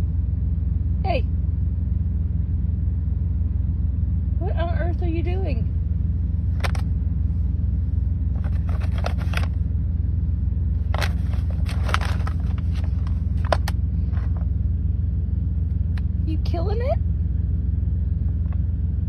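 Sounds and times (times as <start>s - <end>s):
low engine rumble: 0.0s - 19.0s
paper bag crinkling: 8.4s - 9.6s, 10.8s - 14.5s.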